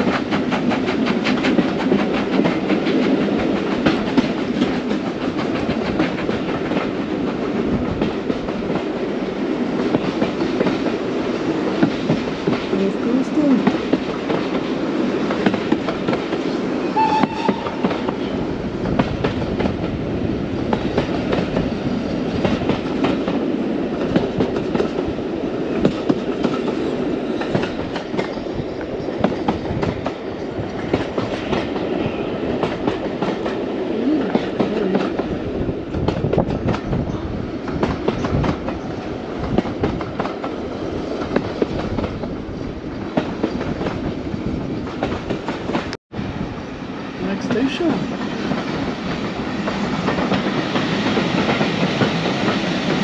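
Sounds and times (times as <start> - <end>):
train wheels clattering over rail joints: 0.0 - 9.0, 20.6 - 25.1
train running noise: 0.0 - 53.0.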